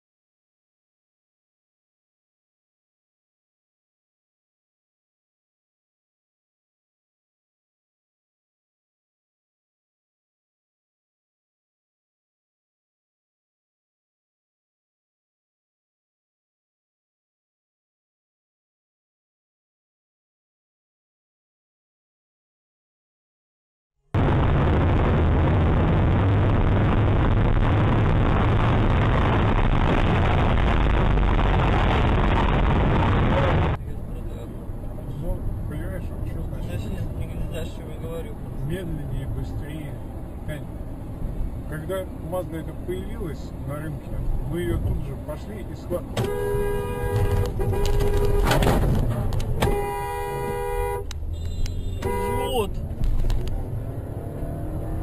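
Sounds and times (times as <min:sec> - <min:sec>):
car driving through tunnel: 0:24.2 - 0:55.0
two-tone car horn: 0:46.2 - 0:48.6, 0:49.6 - 0:52.7.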